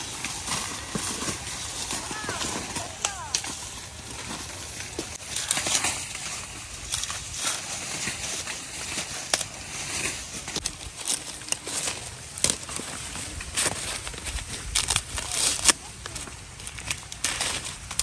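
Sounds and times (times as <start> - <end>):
dry corn husks crackling and tearing: 0.0 - 18.0.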